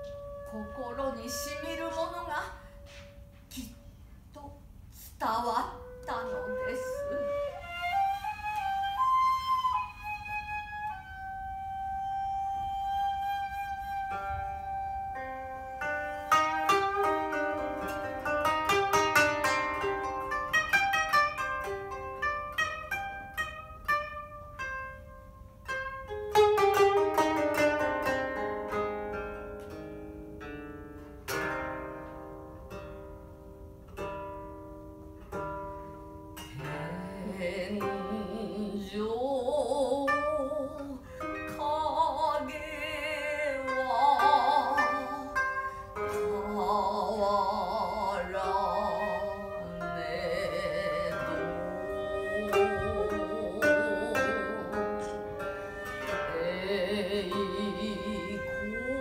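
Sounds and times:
bamboo flute: 0:00.0 - 0:04.0, 0:05.2 - 0:29.8, 0:36.4 - 0:59.0
koto plucked notes: 0:00.0 - 0:04.0, 0:05.2 - 0:59.0
person singing: 0:36.6 - 0:45.4, 0:56.3 - 0:59.0.

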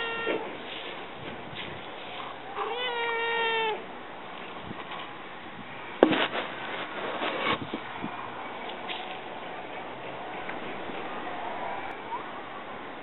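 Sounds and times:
cat meowing: 0:00.0 - 0:00.5, 0:02.5 - 0:03.8.

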